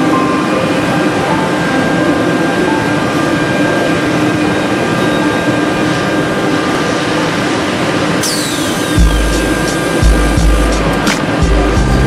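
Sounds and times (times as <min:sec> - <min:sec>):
router spindles cutting wood: 0:08.2 - 0:11.0.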